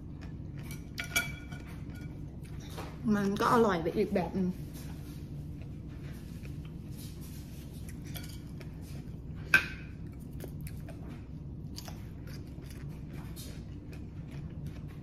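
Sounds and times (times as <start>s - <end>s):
chopsticks clinking on ceramic plate: 0.7s - 2.2s
crunchy chewing: 4.7s - 15.0s.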